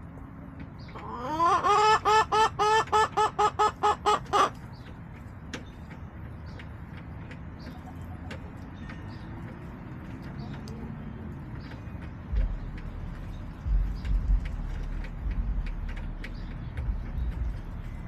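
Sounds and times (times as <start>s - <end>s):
chicken clucking: 0.6s - 15.3s.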